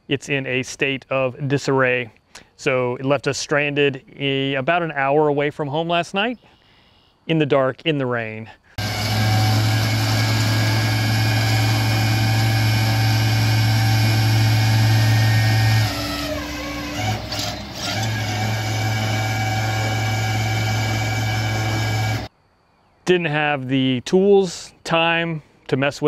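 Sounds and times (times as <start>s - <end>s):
truck engine and winch running: 8.8s - 22.3s.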